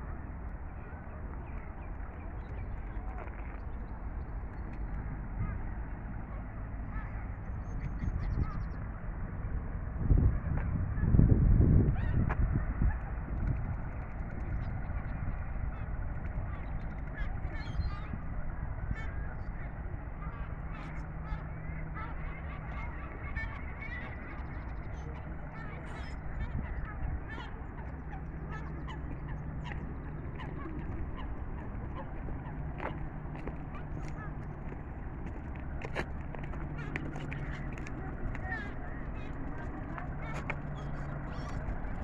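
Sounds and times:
steady low rumble: 0:00.0 - 0:42.0
waterfowl and gulls calling: 0:11.9 - 0:42.0
high chattering bird calls: 0:12.9 - 0:34.7, 0:36.6 - 0:42.0
ducks quacking: 0:18.9 - 0:34.8
geese honking: 0:18.9 - 0:34.8.

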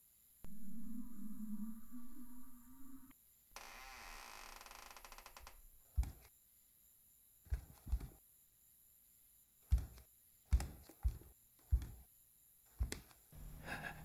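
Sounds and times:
wooden door creaking open: 0:03.6 - 0:06.1
heavy footsteps on wooden floor: 0:06.0 - 0:06.2, 0:09.7 - 0:12.0.

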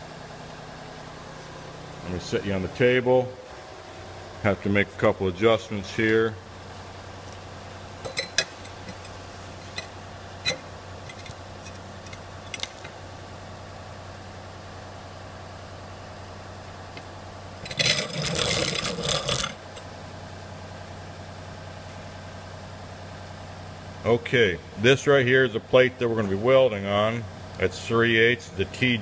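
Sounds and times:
engine-driven welder humming: 0:00.0 - 0:29.0
rough scraping noise: 0:17.7 - 0:19.6.

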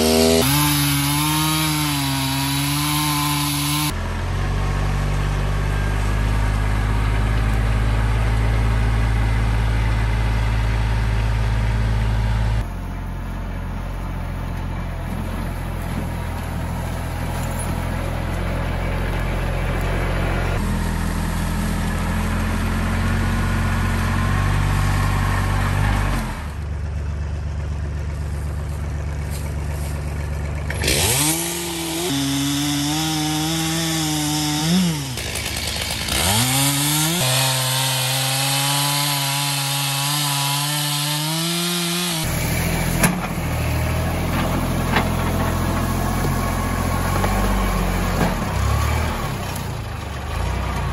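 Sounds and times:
chainsaw revving: 0:00.0 - 0:04.0, 0:30.6 - 0:43.0
tractor diesel engine running: 0:00.0 - 0:50.9.

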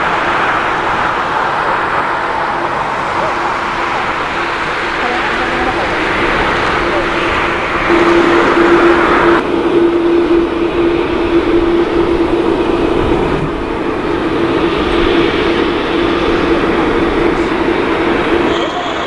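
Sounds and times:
jet engines humming: 0:00.0 - 0:19.0.

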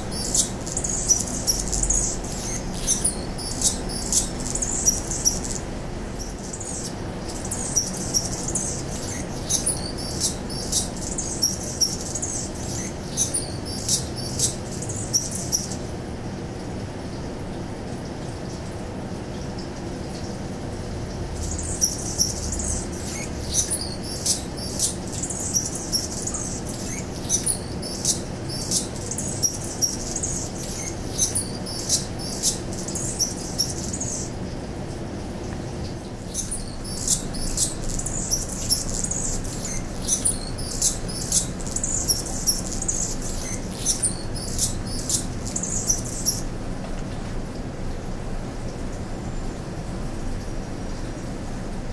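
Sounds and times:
hummingbird singing: 0:00.0 - 0:15.8, 0:21.4 - 0:34.4, 0:36.2 - 0:46.5.

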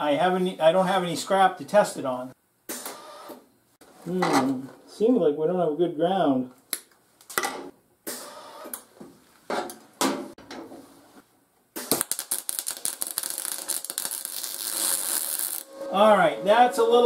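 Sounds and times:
welder arc crackling: 0:11.8 - 0:16.0.

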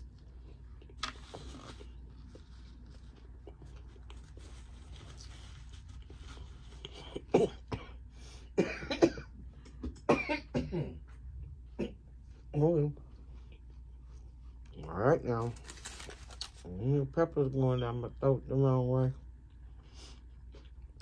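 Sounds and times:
woman coughing: 0:07.1 - 0:08.0, 0:08.6 - 0:09.3, 0:10.1 - 0:11.0.

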